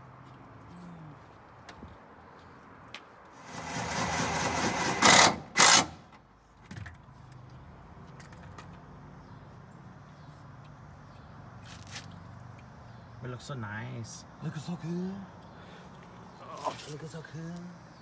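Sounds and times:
impact wrench bursts: 0:03.4 - 0:06.1
impact wrench whirring: 0:03.5 - 0:06.0.

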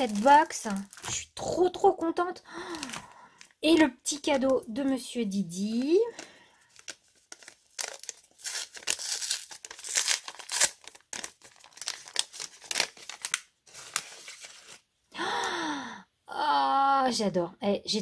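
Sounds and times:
paper crinkling and rustling: 0:00.0 - 0:14.8
sticker seal tearing: 0:07.3 - 0:13.0.

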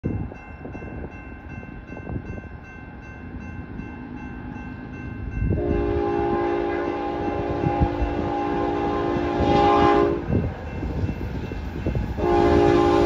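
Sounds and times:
train engine and rail rumble: 0:00.0 - 0:13.0
locomotive air horn: 0:05.6 - 0:10.4, 0:12.2 - 0:13.0.

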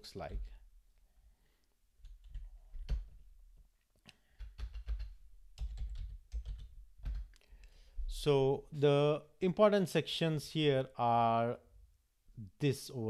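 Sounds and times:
typing on computer keyboard: 0:02.0 - 0:03.2, 0:04.3 - 0:07.4.

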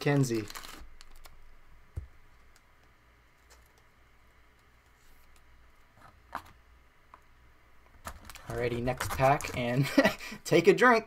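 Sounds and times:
cards sliding into plastic sleeves: 0:08.1 - 0:09.8.

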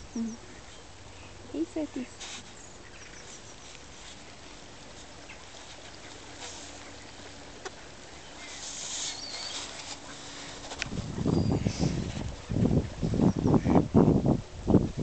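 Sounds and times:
low steady background noise: 0:00.0 - 0:15.0
high rustle: 0:02.0 - 0:13.0.

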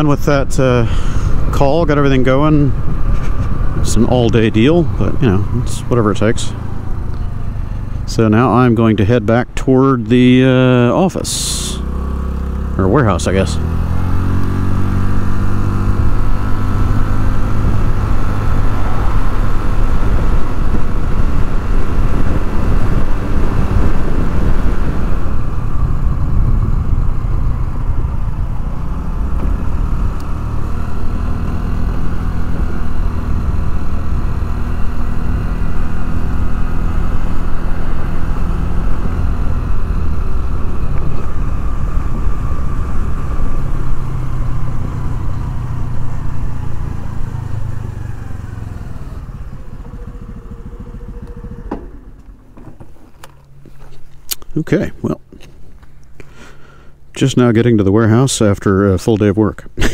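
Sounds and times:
motorcycle engine running: 0:00.0 - 0:56.6
wind over microphone: 0:00.6 - 0:06.2, 0:14.6 - 0:30.2.

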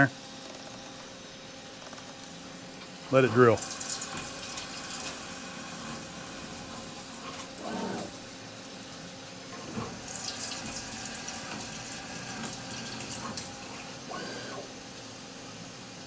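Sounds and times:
mill spindle and drill running: 0:00.0 - 0:16.0
coolant splashing and hissing: 0:03.1 - 0:08.2, 0:09.5 - 0:14.8.

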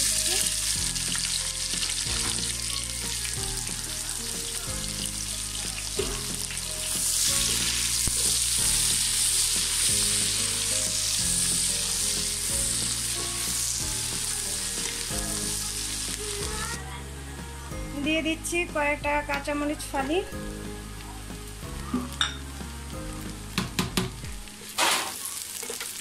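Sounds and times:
onions sizzling in oil: 0:00.0 - 0:16.9, 0:19.5 - 0:26.0
background music low notes: 0:00.0 - 0:24.8.

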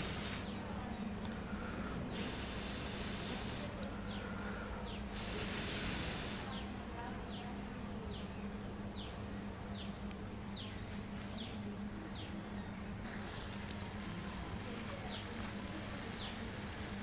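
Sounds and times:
high hiss: 0:00.0 - 0:00.7, 0:01.7 - 0:07.4
steady low insect-like buzz: 0:00.0 - 0:17.0.

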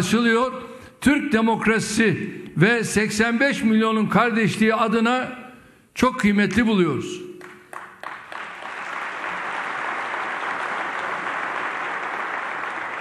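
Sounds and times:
crowd applauding: 0:07.4 - 0:13.0.

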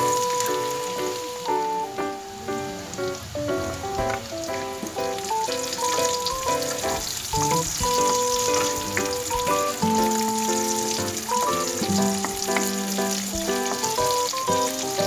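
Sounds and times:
light background music: 0:00.0 - 0:15.0
onion and garlic sizzling in oil: 0:00.0 - 0:15.0.

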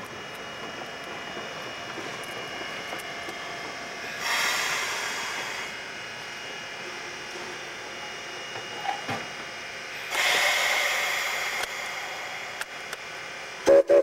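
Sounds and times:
steam locomotive hissing: 0:00.0 - 0:14.0
steam whistle toots: 0:13.6 - 0:14.0.

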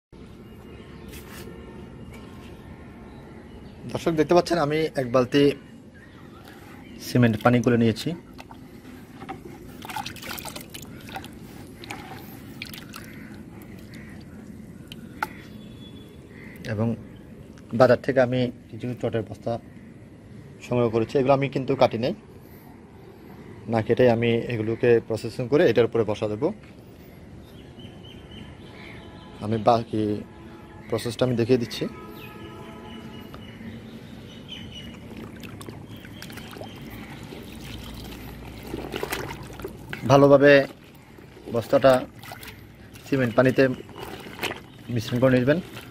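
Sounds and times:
cement slurry sloshing in bucket: 0:07.0 - 0:14.2, 0:34.7 - 0:45.9
watery splashing and dripping: 0:09.4 - 0:15.5, 0:34.7 - 0:45.9.

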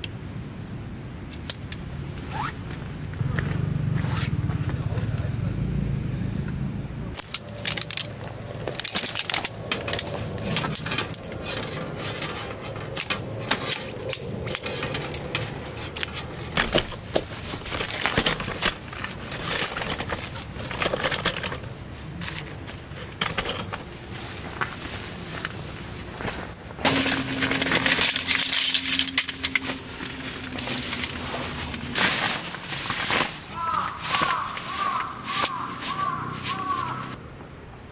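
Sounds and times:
boots crunching on gravel: 0:29.6 - 0:37.2.

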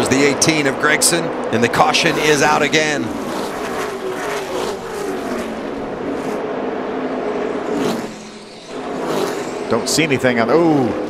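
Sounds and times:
race truck engines passing: 0:00.0 - 0:11.0.

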